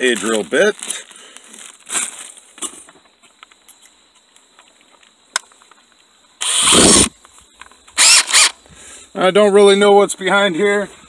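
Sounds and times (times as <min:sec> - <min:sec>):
power drill buzzing whir: 0:06.4 - 0:07.1, 0:08.0 - 0:08.6
drill handling clicks: 0:08.0 - 0:08.5.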